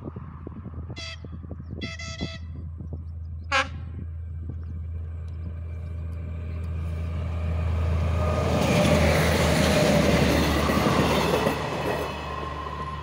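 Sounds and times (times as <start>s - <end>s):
low hum: 0.0s - 8.3s
train wheels on rails passing: 0.0s - 13.0s.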